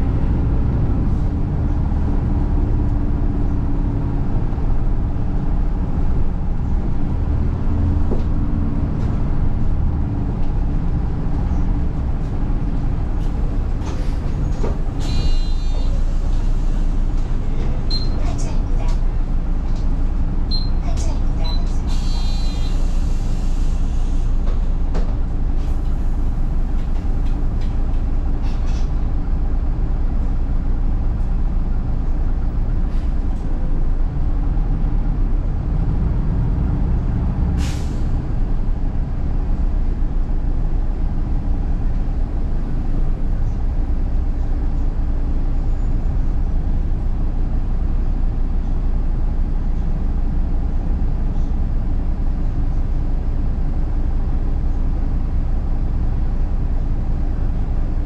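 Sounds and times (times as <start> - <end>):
bus engine and road rumble: 0.0 - 58.0
air brakes hissing: 15.0 - 17.3, 21.6 - 24.8, 28.4 - 29.0, 37.5 - 38.2.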